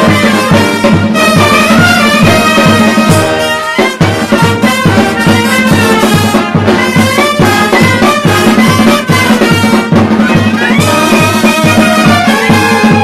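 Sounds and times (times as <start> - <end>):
clarinet: 0.0 - 13.0
trumpets and flugelhorns: 0.0 - 13.0.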